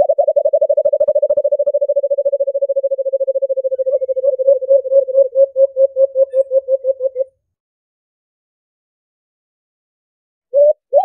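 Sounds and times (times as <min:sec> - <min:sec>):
dove hooting: 0:00.0 - 0:07.3, 0:10.6 - 0:11.0.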